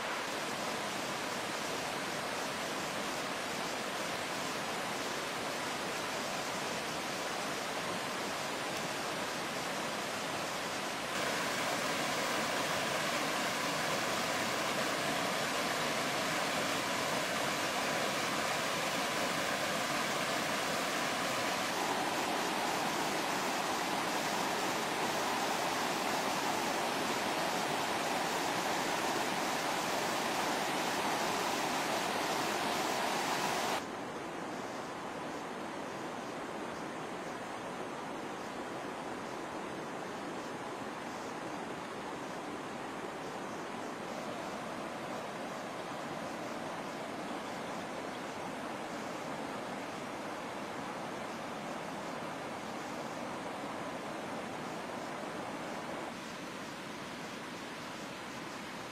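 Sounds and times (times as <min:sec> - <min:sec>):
water rushing over rocks: 0:05.4 - 0:33.8.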